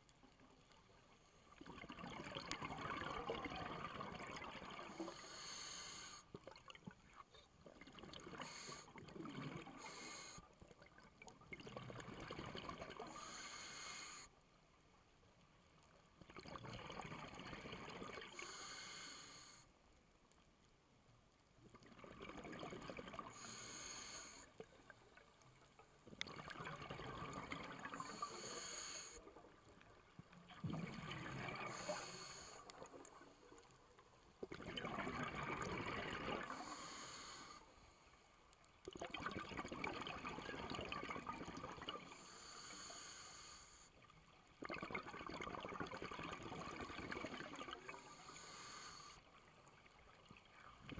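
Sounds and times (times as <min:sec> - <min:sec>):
regulator inhale hiss: 0:04.9 - 0:06.3, 0:08.4 - 0:09.0, 0:09.7 - 0:10.6, 0:13.0 - 0:14.4, 0:18.3 - 0:19.8, 0:23.3 - 0:24.6, 0:27.9 - 0:29.2, 0:31.5 - 0:32.9, 0:36.4 - 0:38.2, 0:42.0 - 0:44.0, 0:47.8 - 0:49.4
bubbling exhale: 0:30.6 - 0:33.2, 0:34.5 - 0:37.7.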